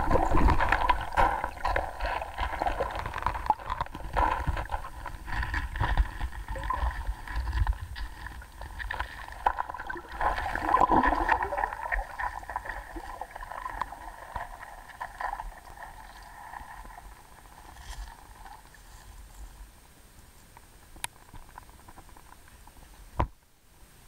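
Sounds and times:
water swirling underwater: 0.0s - 18.7s.

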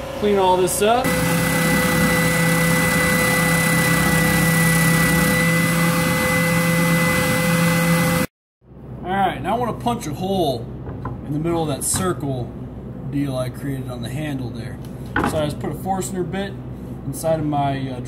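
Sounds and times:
spindle sander humming: 1.0s - 8.3s.

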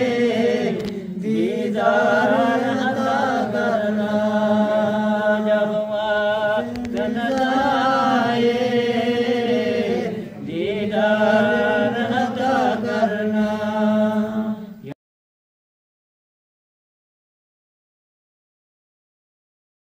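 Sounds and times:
man singing: 1.2s - 15.0s.

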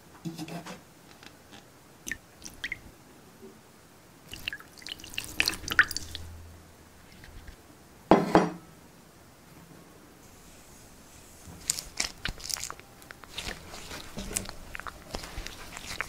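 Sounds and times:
liquid dripping: 2.1s - 2.9s, 4.3s - 6.4s, 11.6s - 16.0s.

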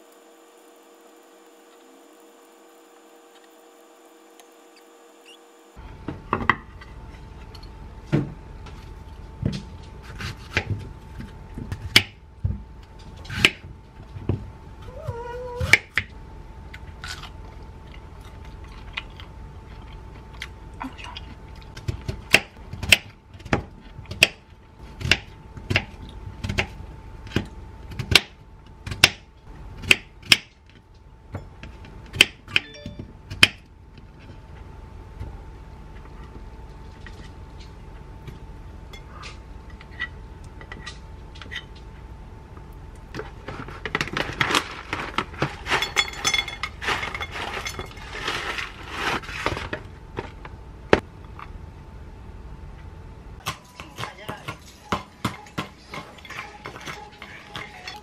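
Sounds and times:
thin steady hum: 0.0s - 29.9s.

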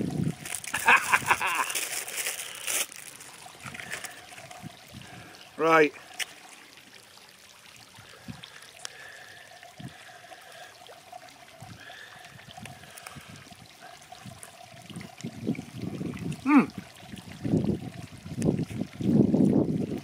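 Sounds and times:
wind on microphone: 0.0s - 1.4s, 3.6s - 5.3s, 9.8s - 10.0s, 11.6s - 20.0s
plastic pouches crinkling: 0.4s - 4.2s
person humming: 16.4s - 16.7s.

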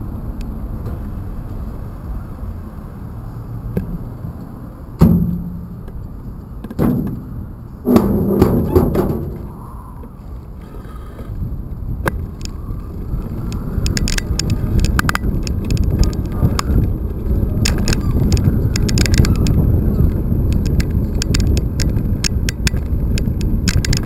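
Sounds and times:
bike clicking and rattling: 3.7s - 24.0s
bicycle rolling on paving: 9.4s - 24.0s.

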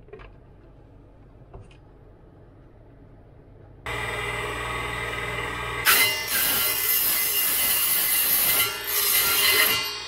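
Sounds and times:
saw motor whine: 3.9s - 10.0s
saw blade cutting metal tube: 5.8s - 10.0s.

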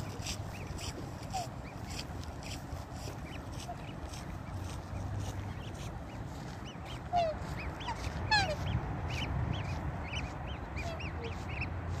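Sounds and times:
cygnets peeping: 0.0s - 12.0s.

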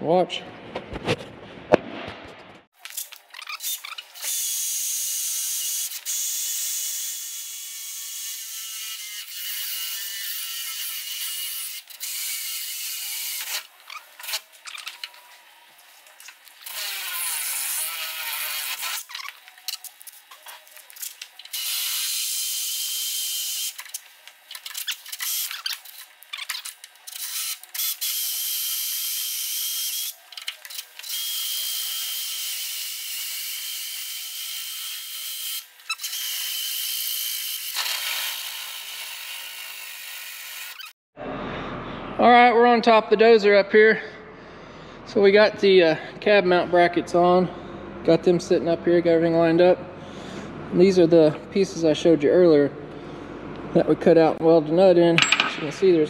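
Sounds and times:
cordless drill boring through steel: 31.0s - 41.0s.

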